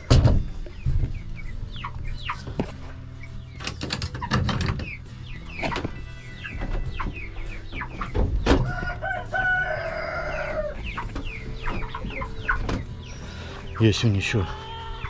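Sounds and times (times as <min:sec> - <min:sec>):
chickens clucking: 0:00.0 - 0:15.0
rooster crowing: 0:08.6 - 0:10.8.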